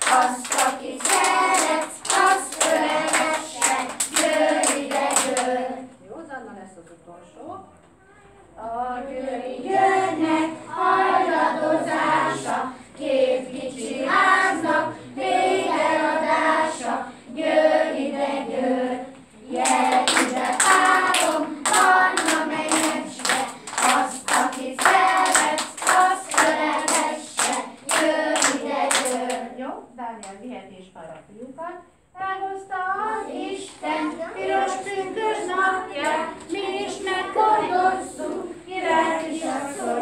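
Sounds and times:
children clapping: 0:00.0 - 0:05.7, 0:19.6 - 0:29.4
children singing: 0:00.0 - 0:05.9, 0:08.6 - 0:29.5, 0:32.8 - 0:40.0.

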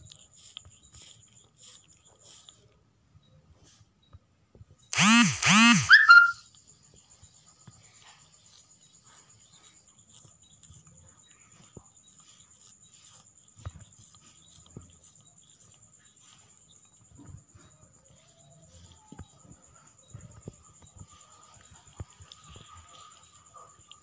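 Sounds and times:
kitten licking: 0:00.0 - 0:02.8, 0:07.9 - 0:19.1, 0:19.8 - 0:24.0
short high squeak: 0:04.9 - 0:06.4.

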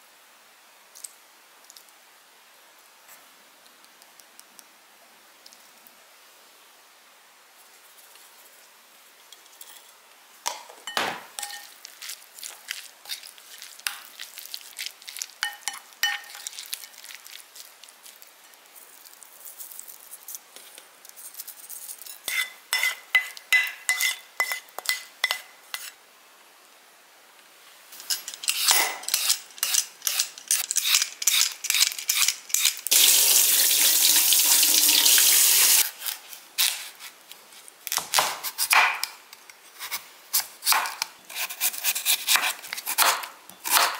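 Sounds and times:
wooden spoon and dishes clinking: 0:09.4 - 0:11.8, 0:15.4 - 0:16.5
knife slicing on cutting board: 0:39.8 - 0:43.9.

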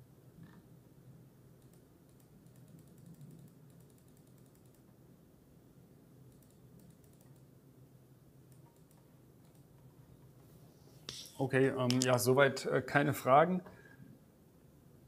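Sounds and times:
typing on computer keyboard: 0:01.6 - 0:04.9, 0:06.3 - 0:07.5, 0:08.5 - 0:09.7.

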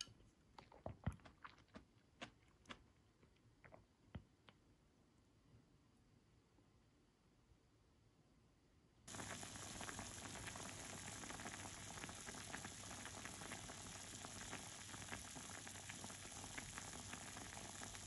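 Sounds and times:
broth bubbling in a pot: 0:09.1 - 0:18.0.

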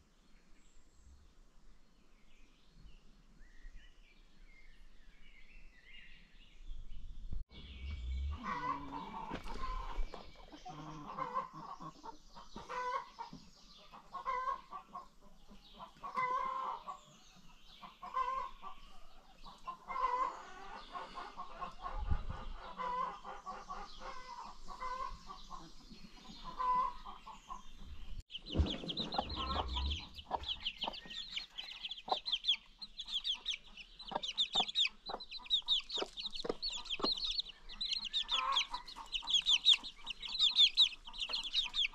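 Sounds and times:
baby chicks peeping: 0:07.5 - 0:41.9
chickens clucking: 0:07.7 - 0:41.9.

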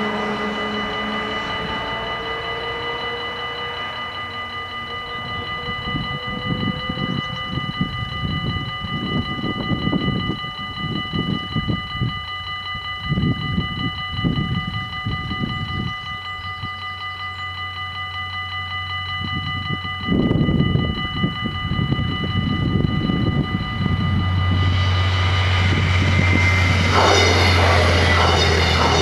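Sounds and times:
level crossing warning bells: 0:00.0 - 0:29.0
wind rumbling on microphone: 0:04.8 - 0:12.3, 0:12.9 - 0:16.7, 0:19.2 - 0:29.0
loud low rumble: 0:22.4 - 0:29.0.

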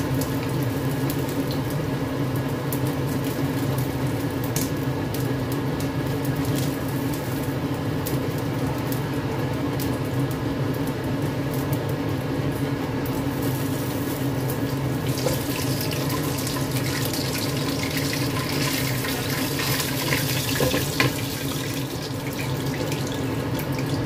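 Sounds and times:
fan humming: 0:00.0 - 0:24.0
hot oil crackling in a wok: 0:00.0 - 0:24.0.

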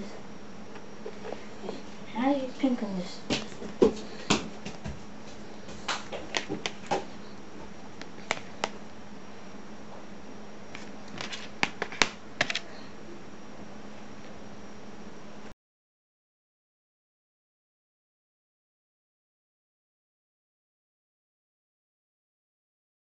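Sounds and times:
low electrical hum and hiss: 0:00.0 - 0:15.5.

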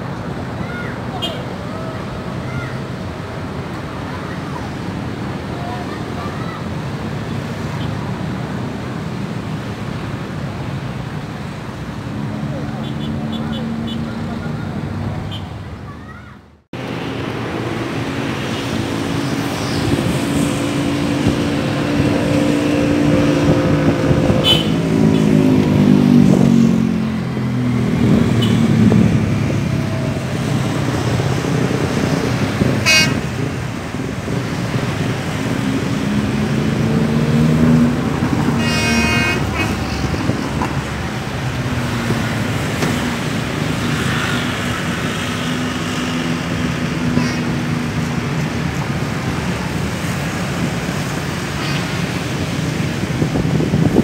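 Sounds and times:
road traffic and motorcycles: 0:00.0 - 0:54.0
short horn toot: 0:38.6 - 0:40.2.

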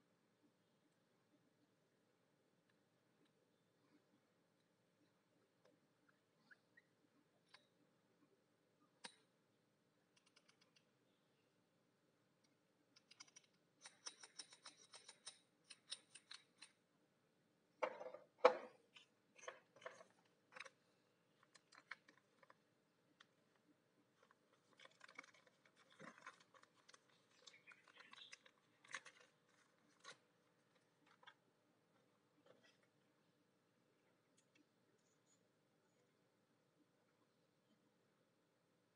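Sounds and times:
small metal parts clicking: 0:13.0 - 0:16.8, 0:21.4 - 0:22.5, 0:24.6 - 0:30.2.

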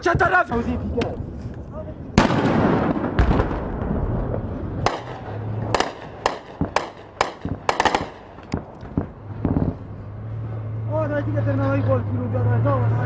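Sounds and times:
gunshots: 0:02.2 - 0:09.8.

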